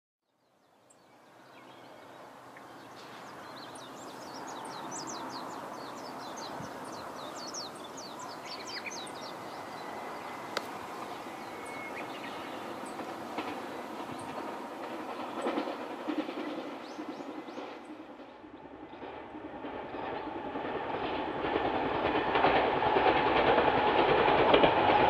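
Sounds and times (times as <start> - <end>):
small birds twittering: 0.4 - 19.1
approaching electric train: 1.1 - 25.0.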